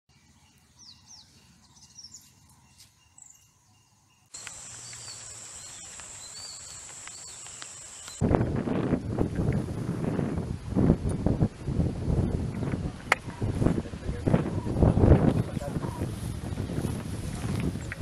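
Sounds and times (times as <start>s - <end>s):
birds chirping: 0.1s - 8.2s, 13.2s - 16.1s
high-pitched insect drone: 3.7s - 8.2s
wind rumbling on microphone: 4.4s - 18.0s.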